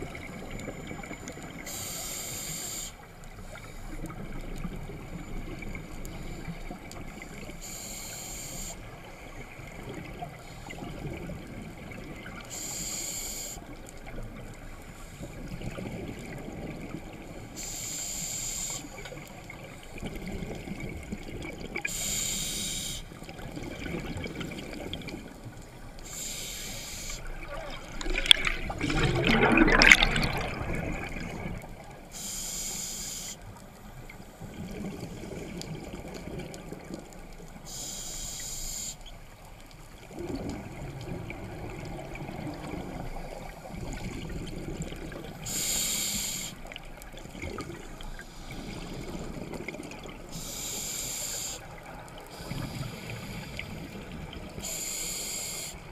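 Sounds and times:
exhaled bubbles rumbling underwater: 0:00.0 - 0:07.8, 0:08.6 - 0:13.0, 0:13.6 - 0:17.5, 0:18.9 - 0:32.3, 0:33.4 - 0:37.9, 0:39.0 - 0:55.9
regulator hissing on inhalation: 0:01.7 - 0:03.0, 0:07.6 - 0:08.9, 0:12.5 - 0:13.7, 0:17.5 - 0:19.0, 0:21.9 - 0:23.2, 0:26.0 - 0:27.3, 0:32.1 - 0:33.4, 0:37.7 - 0:39.0, 0:45.4 - 0:46.7, 0:50.4 - 0:51.7, 0:54.6 - 0:55.9.

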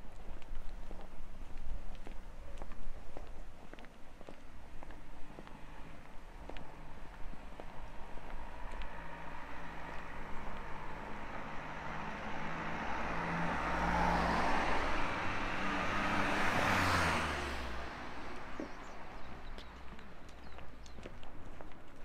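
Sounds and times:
car driving past: 0:05.4 - 0:19.6.

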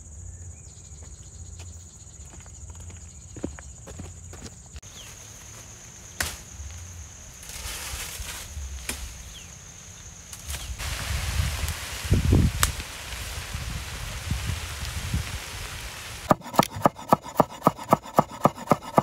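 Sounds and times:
rustling grass: 0:04.8 - 0:16.3
twigs snapping: 0:12.6 - 0:13.0.

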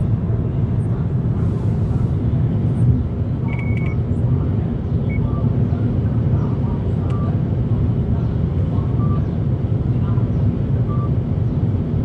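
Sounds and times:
car cabin road and engine rumble: 0:00.0 - 0:12.0
short high beeps: 0:03.5 - 0:04.0.

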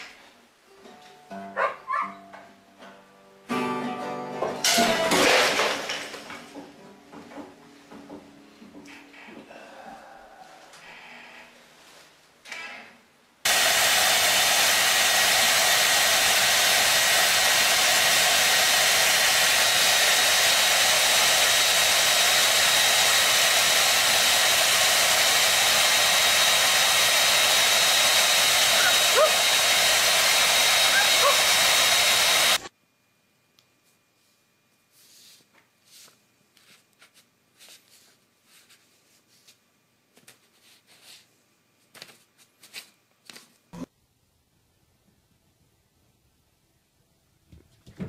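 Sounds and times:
hair dryer blowing: 0:13.5 - 0:32.7.

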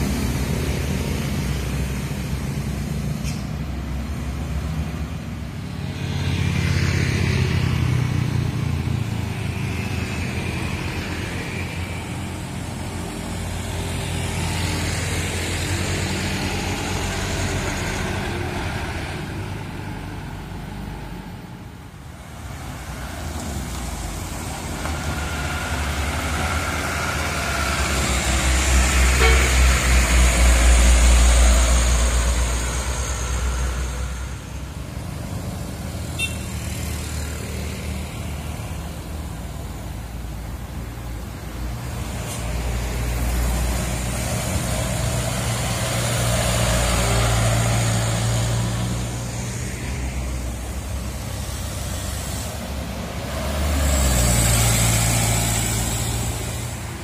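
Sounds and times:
motorcycles passing: 0:22.3 - 0:57.0.

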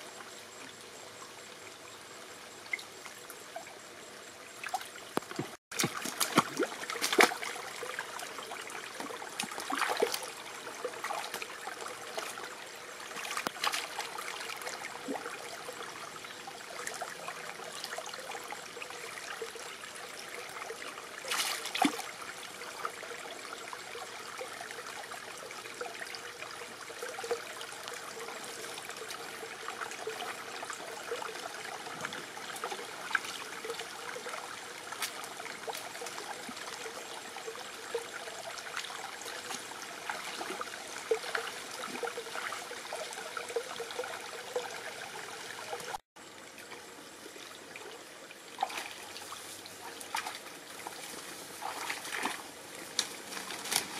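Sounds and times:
stream trickling over rocks: 0:00.0 - 0:53.9
splashes in water: 0:04.6 - 0:12.5, 0:13.1 - 0:15.3, 0:21.2 - 0:22.2, 0:48.5 - 0:53.9.

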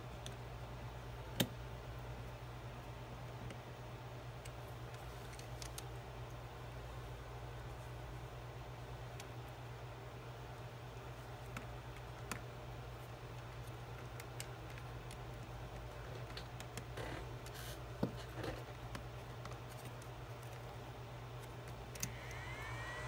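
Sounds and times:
small clicks and scratches: 0:04.4 - 0:06.4, 0:10.6 - 0:23.0.

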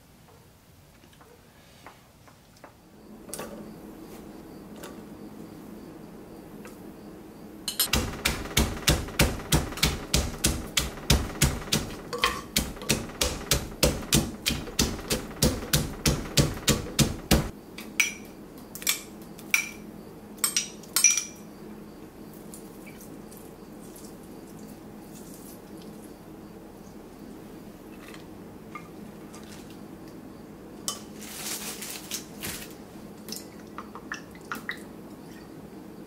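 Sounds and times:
wooden pestle pounding in mortar: 0:07.9 - 0:17.5.

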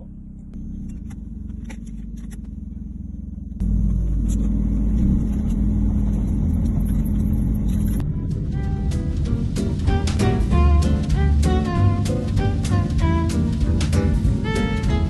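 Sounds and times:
car engine low rumble: 0:00.0 - 0:15.0.

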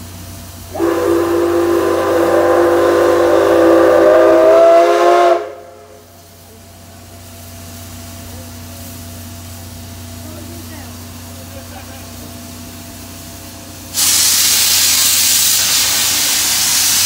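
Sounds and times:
steam hissing: 0:00.0 - 0:17.0
steam whistle blast: 0:00.7 - 0:06.1.

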